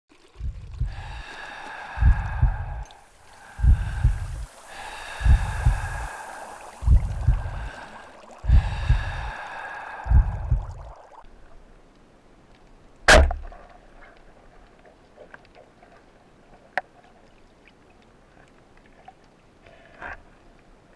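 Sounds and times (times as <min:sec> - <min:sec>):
bubbling water: 0:00.1 - 0:11.7
hissing breaths: 0:00.8 - 0:11.2
heartbeat thuds: 0:02.0 - 0:02.8, 0:03.6 - 0:04.4, 0:05.2 - 0:06.0, 0:06.8 - 0:07.7, 0:08.5 - 0:09.3, 0:10.1 - 0:10.9
speargun firing underwater: 0:13.1 - 0:13.6.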